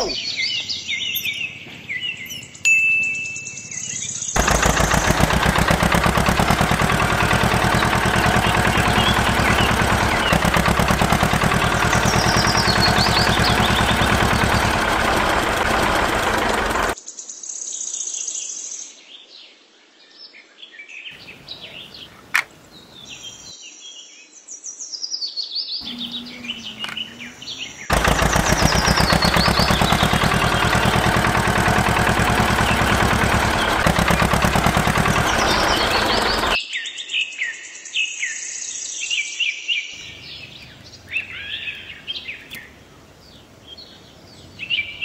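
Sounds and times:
birds chirping: 0.0s - 17.0s, 21.2s - 23.5s, 25.8s - 36.6s, 40.0s - 45.0s
small machine motor pulsing: 4.4s - 17.0s, 25.8s - 36.6s.

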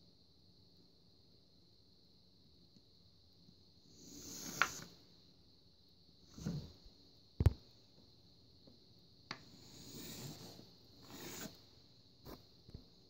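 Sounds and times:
pencil scratching along a ruler: 4.0s - 5.0s, 9.5s - 11.6s.

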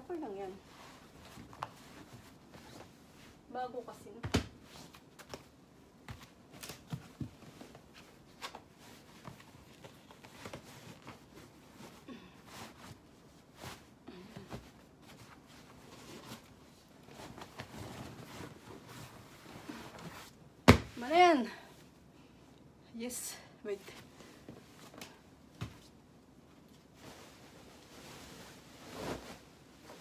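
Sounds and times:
bed sheet rustling: 0.0s - 20.4s, 26.7s - 30.0s.

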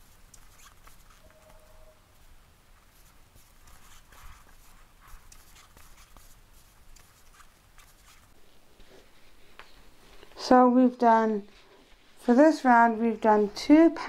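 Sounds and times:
crochet hook rustling yarn: 0.0s - 10.4s.

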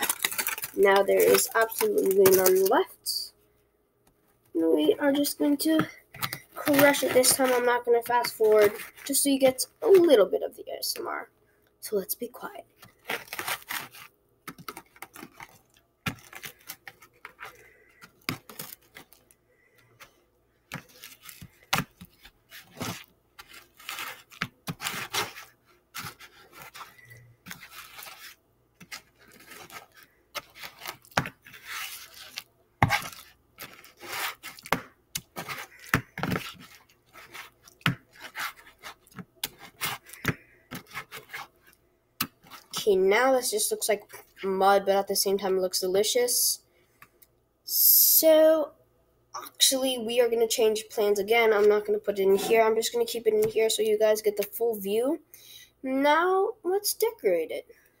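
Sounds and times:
wet squelching masher strokes: 4.7s - 10.2s, 20.7s - 44.4s.

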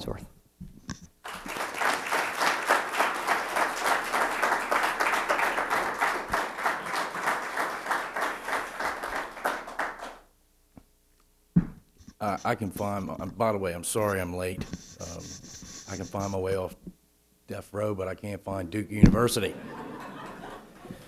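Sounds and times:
audience applauding: 1.2s - 10.2s, 19.7s - 21.0s.

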